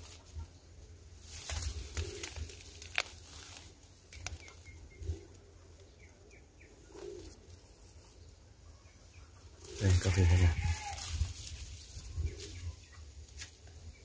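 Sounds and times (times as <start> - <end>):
dove cooing softly: 1.5 - 3.6, 4.2 - 8.0, 9.4 - 11.1.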